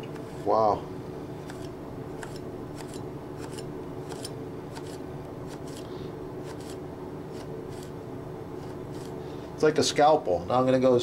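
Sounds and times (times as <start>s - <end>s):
knife slicing pepper on board: 1.4s - 8.0s, 8.6s - 9.2s.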